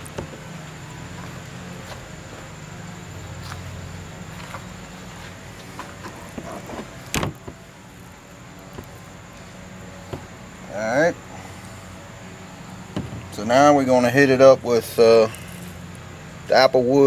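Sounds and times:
steady low hum: 0.0 - 17.0
ribs rubbing on cutting board: 4.3 - 7.1.

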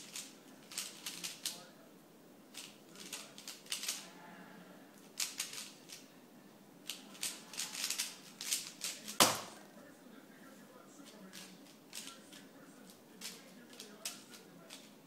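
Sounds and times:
plastic puzzle cube clicking: 0.0 - 1.6, 2.5 - 4.0, 5.2 - 6.0, 6.9 - 9.4
loud sharp knock: 9.2 - 9.6.

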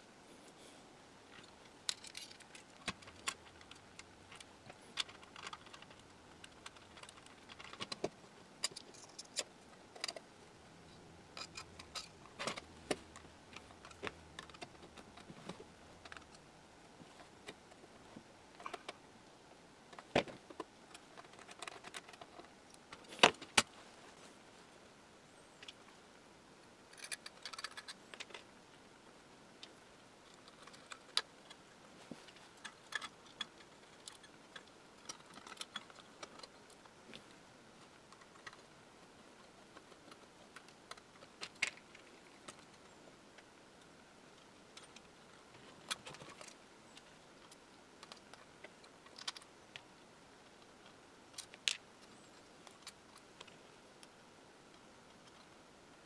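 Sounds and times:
metal hardware clicking and clinking: 1.4 - 10.2, 26.9 - 28.4.

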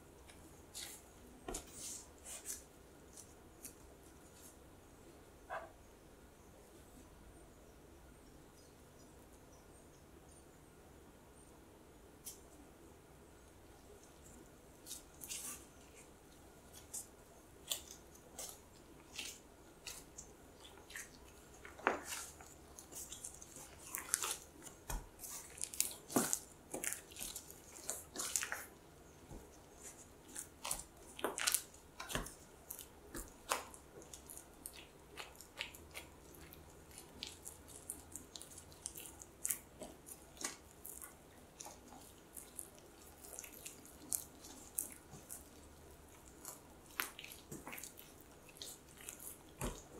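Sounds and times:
sticky dough clicks and taps: 24.0 - 28.7, 30.3 - 42.7, 46.3 - 49.9.

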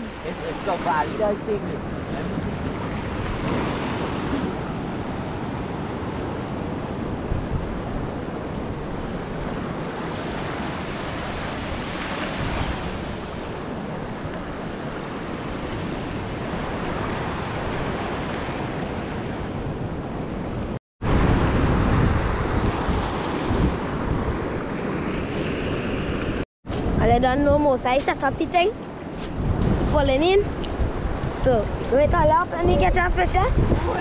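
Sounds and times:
small waves washing on sand: 0.0 - 19.6
wind buffeting microphone: 0.0 - 34.0.

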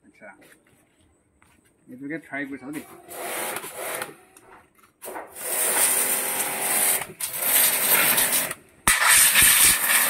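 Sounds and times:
pressure washer pump humming: 2.8 - 4.3, 5.0 - 10.0
water jet hissing: 6.9 - 10.0.

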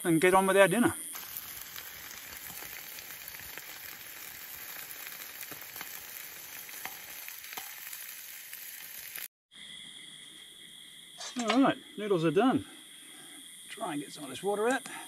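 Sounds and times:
meat sizzling in a pan: 1.1 - 9.3.

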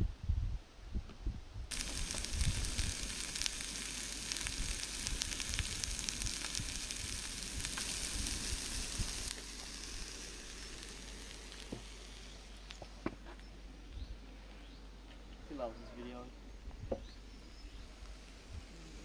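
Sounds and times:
food sizzling in a pan: 1.7 - 12.7.

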